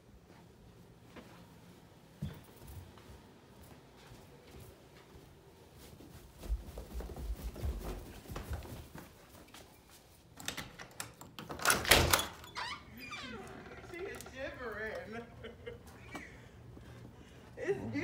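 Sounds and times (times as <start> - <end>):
footsteps on carpeted stairs: 0.1 - 10.4, 14.2 - 17.6
door unlatched and rattling: 10.4 - 14.3.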